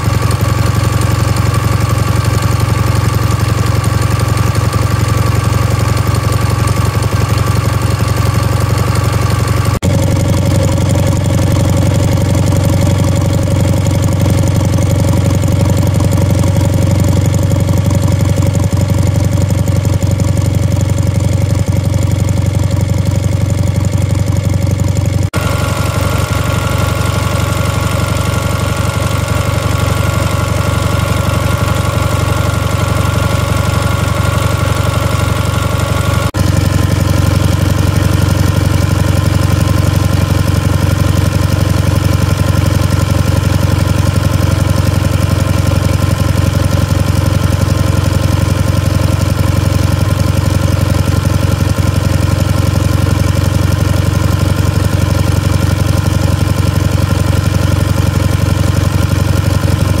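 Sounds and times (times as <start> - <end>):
stationary engine running: 0.0 - 60.0.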